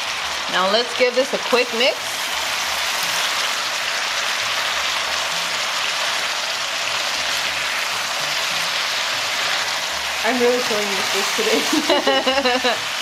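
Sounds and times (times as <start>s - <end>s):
food sizzling in a skillet: 0.0s - 13.0s.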